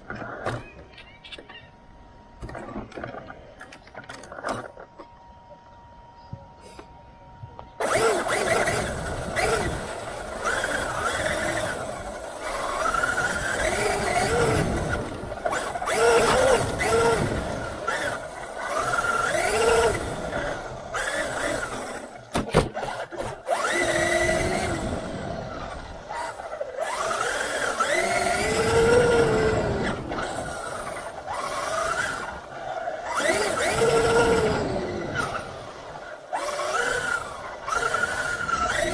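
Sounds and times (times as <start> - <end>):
electric motor whining: 6.6 - 38.9
rc truck rumbling over grass: 7.8 - 38.9.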